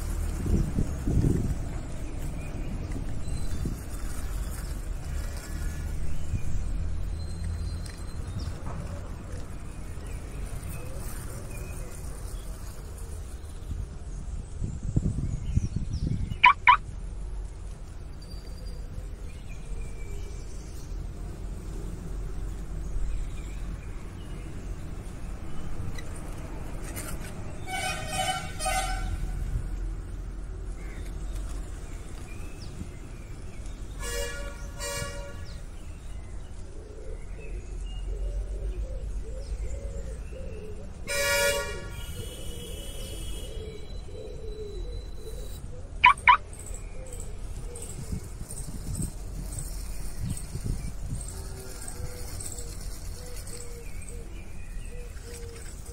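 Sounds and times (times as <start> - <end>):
loud high chirps: 16.4 - 16.8, 46.0 - 46.4
vehicle horns honking: 27.6 - 29.3, 34.0 - 35.6, 41.1 - 43.6.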